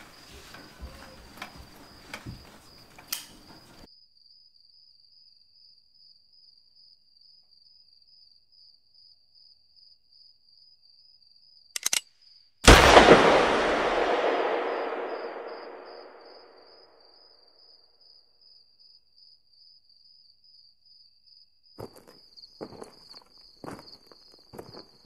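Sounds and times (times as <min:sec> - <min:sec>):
soft footsteps: 0:00.0 - 0:03.8
crickets chirping: 0:00.0 - 0:25.0
quick clicks: 0:11.8 - 0:12.0
loud gunshot bang: 0:12.7 - 0:16.5.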